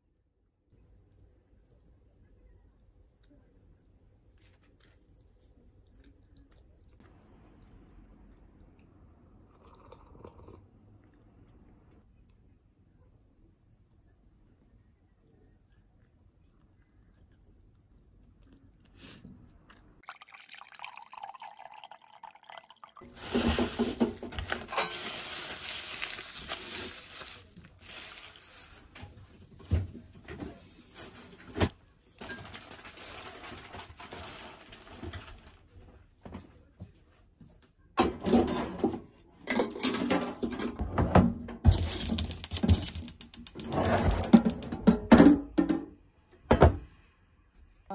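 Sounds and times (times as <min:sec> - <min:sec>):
kitchen items clattering: 0:23.0 - 0:35.6, 0:38.0 - 0:46.0.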